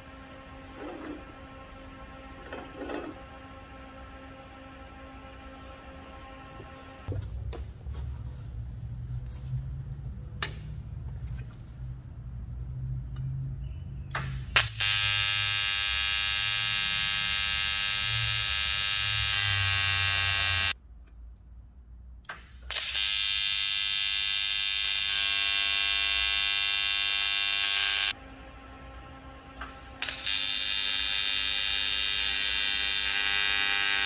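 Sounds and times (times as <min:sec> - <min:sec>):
welding arc buzzing: 0:14.6 - 0:20.8, 0:22.7 - 0:28.2, 0:29.6 - 0:34.0.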